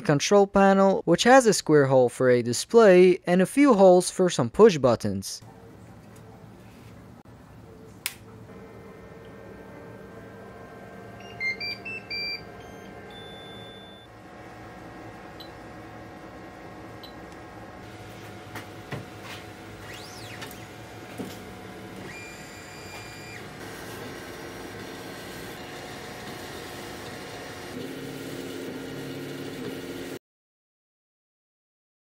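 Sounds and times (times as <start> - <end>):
fan hum: 5.5 - 30.2
stepper motors whining: 19.7 - 30.2.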